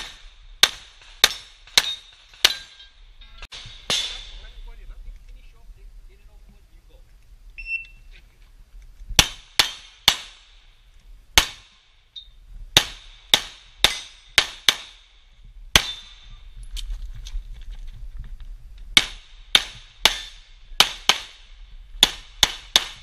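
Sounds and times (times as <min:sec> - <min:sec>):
electronic timer beep: 0:07.6 - 0:08.0
pistol shots: 0:09.2 - 0:10.5, 0:15.7 - 0:16.3, 0:19.0 - 0:23.0.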